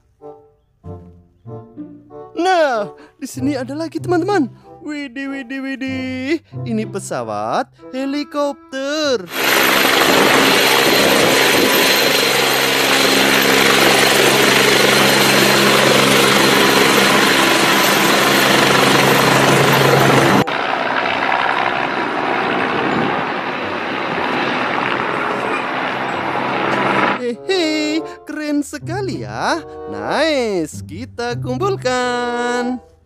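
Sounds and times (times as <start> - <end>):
helicopter hovering: 9.3 - 28.3.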